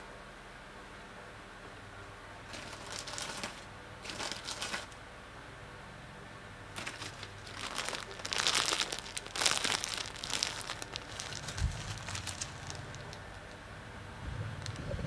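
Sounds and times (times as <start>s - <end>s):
plastic bag crinkling: 2.5s - 5.0s, 6.8s - 13.6s, 14.6s - 14.9s
low handling rumble: 6.8s - 15.0s.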